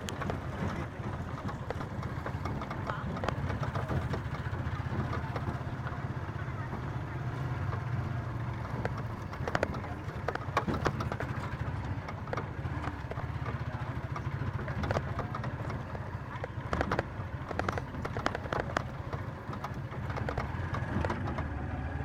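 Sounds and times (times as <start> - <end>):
vehicle engine running: 0.0 - 22.0
body knocks and rattles: 6.7 - 21.5.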